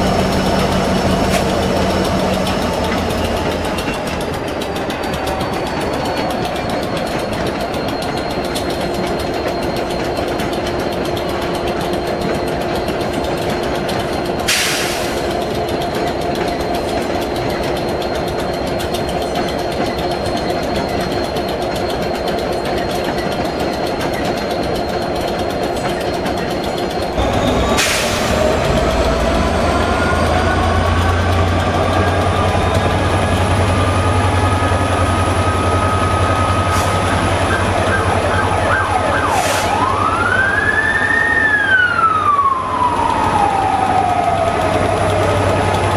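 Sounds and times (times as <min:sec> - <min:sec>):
diesel locomotive engine idling: 0:00.0 - 0:45.9.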